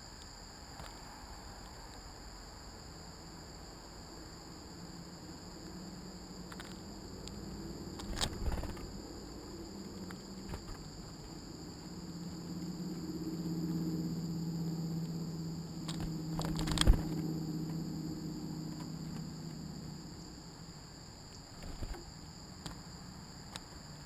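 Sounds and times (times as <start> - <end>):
crickets chirping: 0.0 - 24.0
low hum: 5.6 - 22.0.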